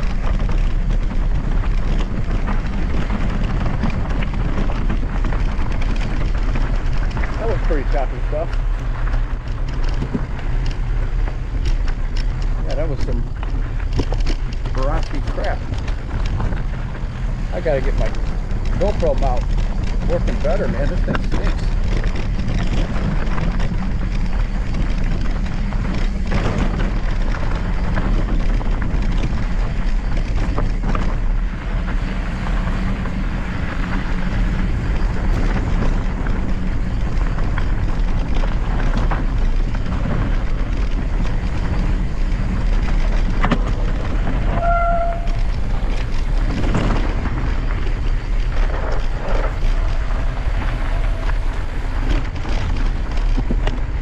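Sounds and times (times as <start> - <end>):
bike knocking and rattling: 0.0 - 54.0
wind and tyres rumbling: 0.0 - 54.0
brief squeak: 44.6 - 45.4.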